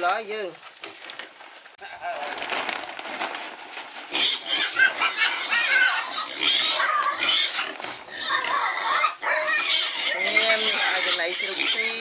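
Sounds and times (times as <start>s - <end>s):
pigs squealing: 4.1s - 12.0s.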